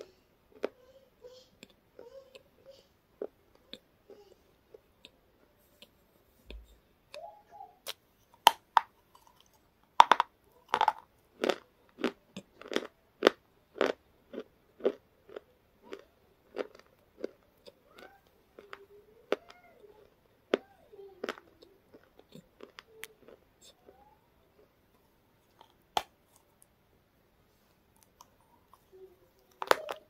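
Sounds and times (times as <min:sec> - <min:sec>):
crunching and chewing chips: 0:08.4 - 0:24.0, 0:27.9 - 0:30.0.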